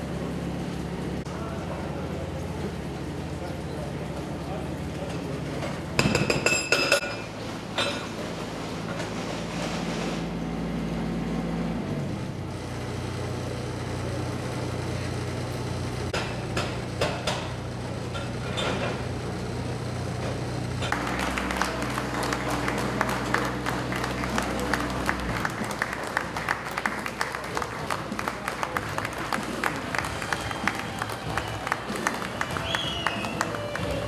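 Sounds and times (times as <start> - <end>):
diesel engine running: 0.0 - 6.5, 7.1 - 34.0
applause: 20.9 - 34.0.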